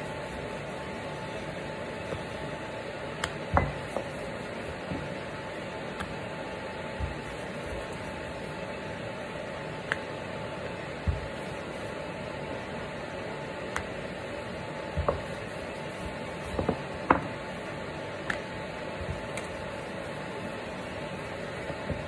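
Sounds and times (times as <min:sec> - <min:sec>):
rolling pin rolling dough: 0:00.0 - 0:22.0
steady background hiss: 0:00.0 - 0:22.0
rolling pin knocking on countertop: 0:03.2 - 0:04.2, 0:11.0 - 0:11.4, 0:14.9 - 0:15.4, 0:16.5 - 0:17.4.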